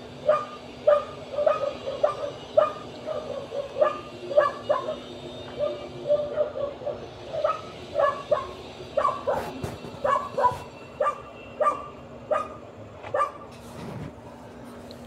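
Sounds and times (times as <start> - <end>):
dog yipping: 0.3 - 5.0, 5.6 - 9.4, 10.0 - 13.4.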